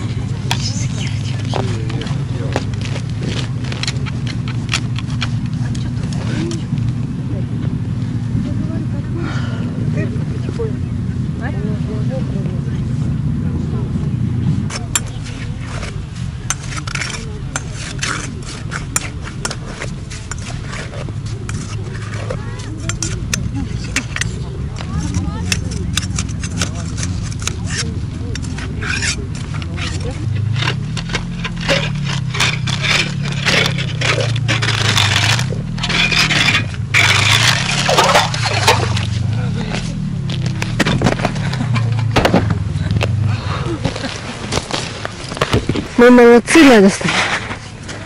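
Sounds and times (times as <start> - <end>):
ice auger scraping and crunching: 0.0 - 6.7, 14.7 - 48.0.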